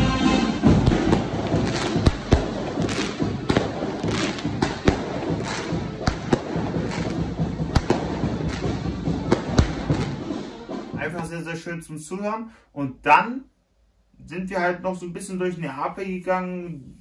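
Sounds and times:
firecrackers banging: 0.0s - 11.3s
background din: 0.0s - 11.4s.

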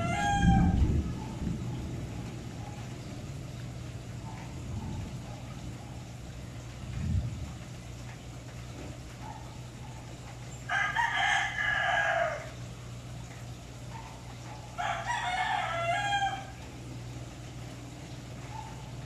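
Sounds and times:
bird crowing: 0.0s - 3.0s, 10.6s - 12.7s, 14.6s - 16.7s
steady low hum: 0.0s - 19.0s.

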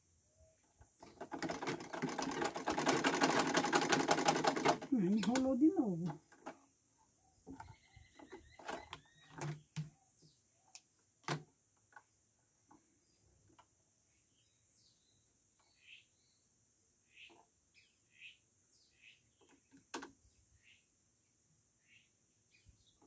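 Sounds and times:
sewing machine clicks and knocks: 1.0s - 6.7s, 7.4s - 9.9s
faint bird chirps: 7.0s - 10.8s, 14.1s - 23.0s.

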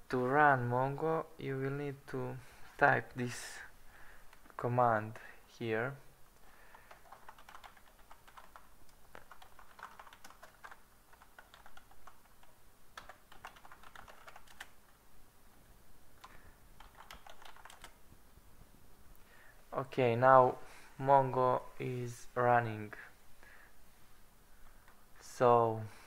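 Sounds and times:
keyboard keys clicking: 6.9s - 14.7s, 16.2s - 18.0s.

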